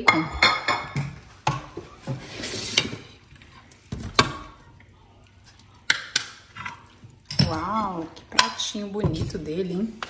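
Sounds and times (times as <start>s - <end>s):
spoon scraping pot: 1.5s - 4.6s.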